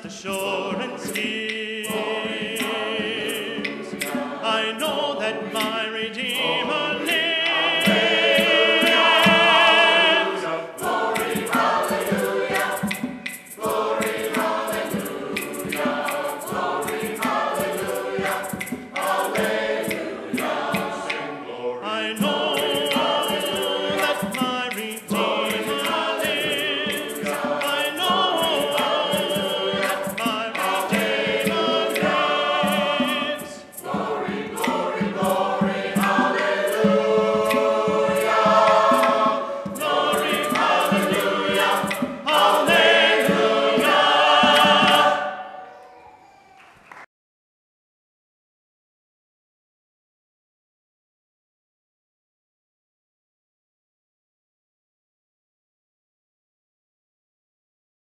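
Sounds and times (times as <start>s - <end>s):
choir singing in harmony: 0.0s - 46.4s.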